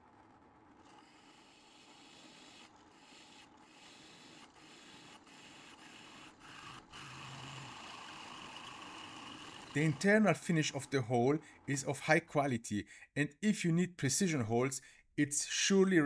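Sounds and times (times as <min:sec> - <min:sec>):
drill press cutting metal: 0:00.8 - 0:10.2.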